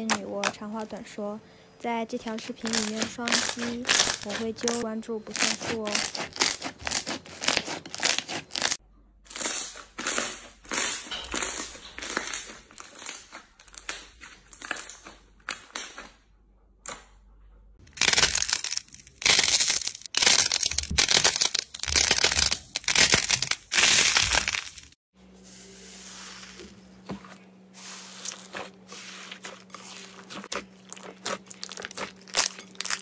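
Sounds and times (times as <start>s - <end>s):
slime squishing and crackling: 2.2s - 16.1s, 17.9s - 25.0s, 27.8s - 33.0s.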